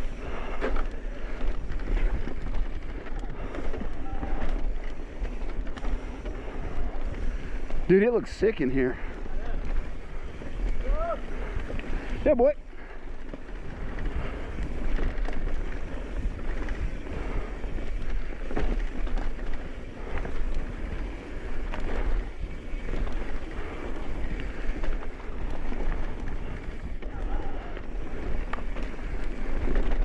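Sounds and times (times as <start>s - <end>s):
bike tyres rolling over dirt: 0.0s - 30.0s
bike knocks and rattles: 13.2s - 30.0s.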